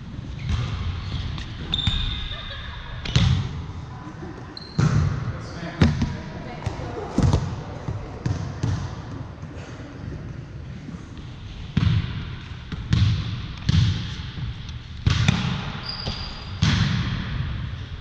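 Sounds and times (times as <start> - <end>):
shoe squeak: 0.4 - 2.5, 4.6 - 4.8, 15.8 - 16.5
volleyball hits: 11.7 - 17.6.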